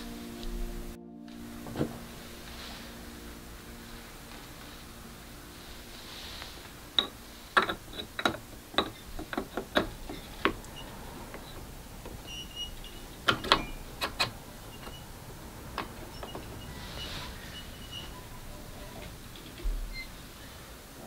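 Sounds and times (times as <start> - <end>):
grinder parts clicking and knocking: 7.0 - 10.6.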